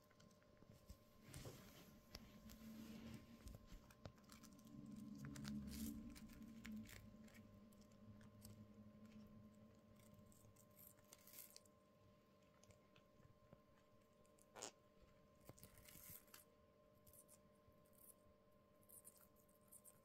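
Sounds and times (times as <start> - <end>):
low hum: 0.2 - 12.9
birds nibbling corn: 2.1 - 11.7.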